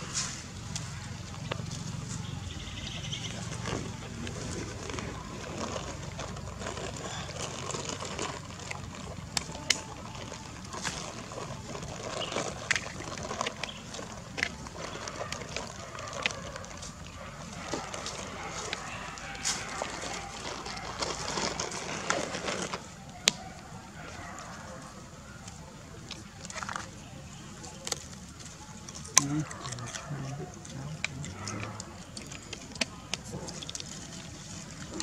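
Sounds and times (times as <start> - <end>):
dry leaves crackling and rustling: 0.0 - 35.0
steady outdoor hiss: 0.0 - 35.0.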